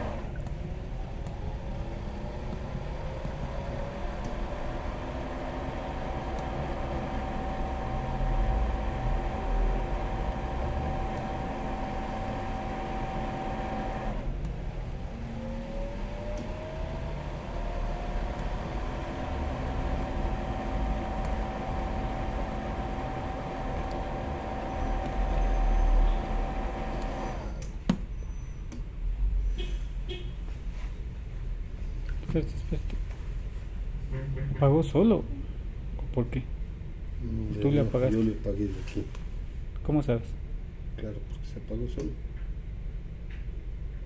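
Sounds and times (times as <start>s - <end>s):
pump motor whine: 0.0s - 27.8s
click: 0.3s - 0.6s, 4.2s - 4.4s, 6.3s - 6.5s, 16.3s - 16.6s, 23.8s - 24.0s, 25.0s - 25.2s, 26.9s - 28.0s.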